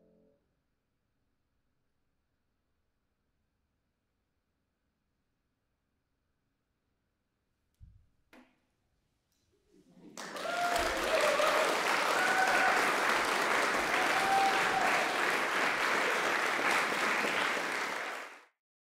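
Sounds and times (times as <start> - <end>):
audience clapping: 10.0 - 18.5
crowd cheering: 10.1 - 18.5.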